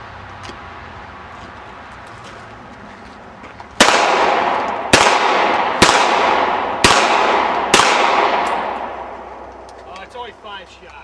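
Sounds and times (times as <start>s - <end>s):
handgun shots echoing: 3.8s - 9.7s.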